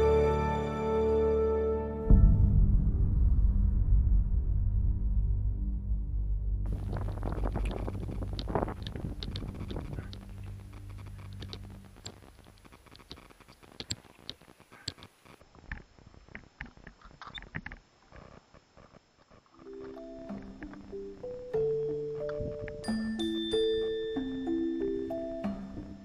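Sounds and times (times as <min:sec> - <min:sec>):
background music: 0:00.0 - 0:12.1, 0:19.7 - 0:26.0.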